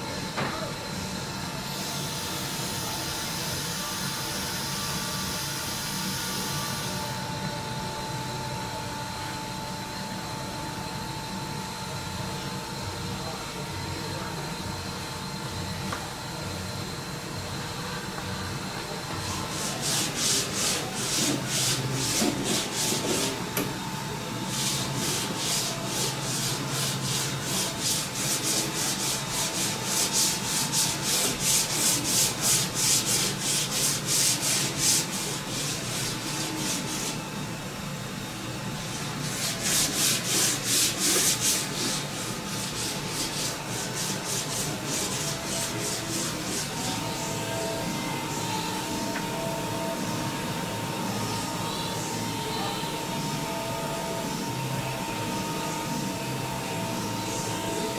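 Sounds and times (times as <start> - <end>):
sanding sponge rasping on wood: 19.5 - 23.4, 24.5 - 37.2, 39.2 - 47.3.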